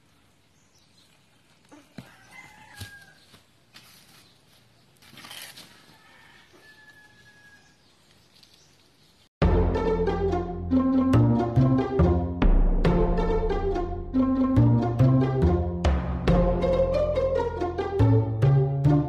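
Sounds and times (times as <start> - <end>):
faint rooster crowing: 1.7 - 3.4, 5.6 - 8.0.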